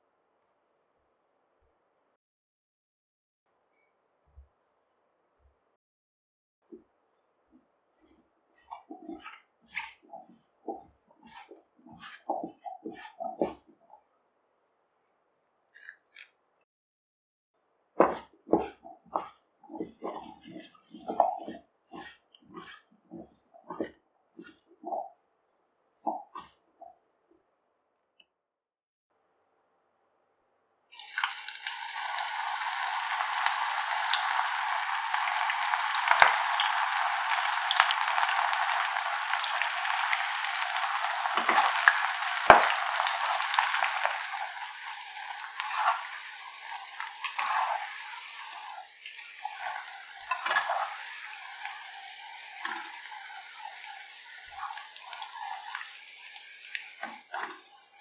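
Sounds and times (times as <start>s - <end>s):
food deep-frying in hot oil: 30.9s - 58.0s.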